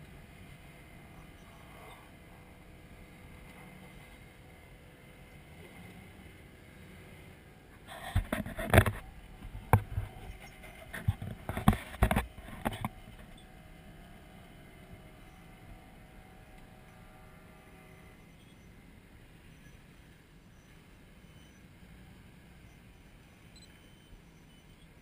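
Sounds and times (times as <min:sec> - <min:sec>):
faint engine running: 0:00.0 - 0:25.0
knocks and rustles near microphone: 0:07.8 - 0:13.3.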